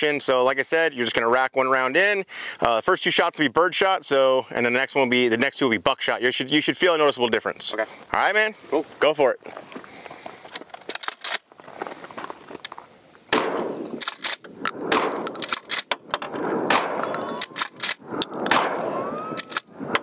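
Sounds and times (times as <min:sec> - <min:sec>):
shotgun pump racking: 0:10.5 - 0:11.4, 0:14.0 - 0:16.3, 0:17.0 - 0:18.6, 0:19.4 - 0:20.0
shotgun shots: 0:13.3 - 0:20.0.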